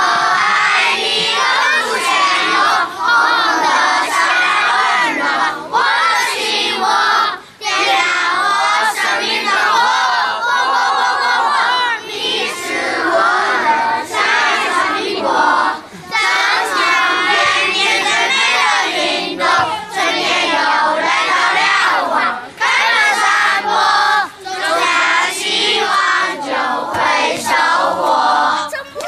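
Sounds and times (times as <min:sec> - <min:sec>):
children singing together: 0:00.0 - 0:29.0.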